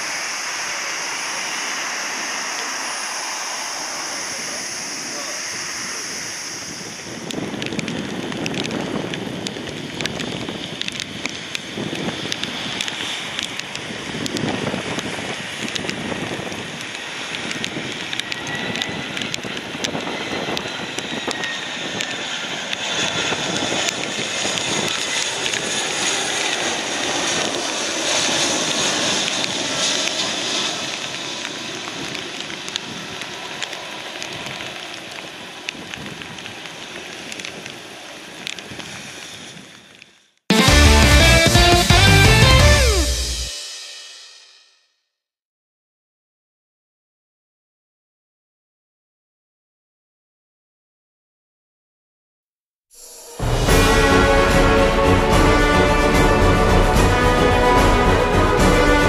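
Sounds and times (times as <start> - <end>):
jet engine whine and rumble: 0.0 - 40.4
wind buffeting microphone: 3.9 - 29.8
heavy rain: 40.5 - 43.5, 53.2 - 59.0.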